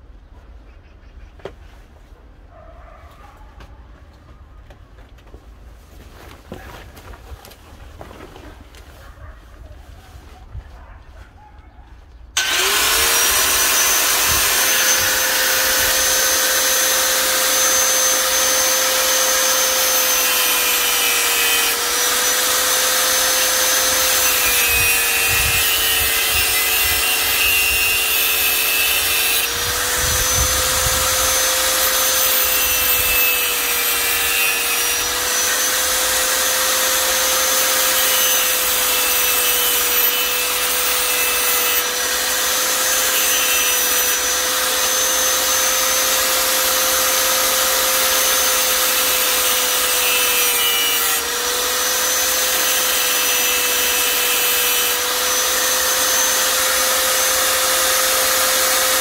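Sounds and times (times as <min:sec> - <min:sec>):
electric mini grinder whine: 0:12.4 - 0:59.0.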